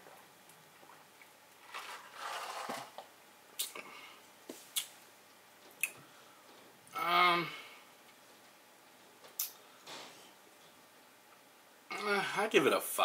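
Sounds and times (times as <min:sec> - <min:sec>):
lip smacks and tongue clicks: 0:03.6 - 0:03.8, 0:04.7 - 0:05.0, 0:05.7 - 0:06.0, 0:09.4 - 0:09.6.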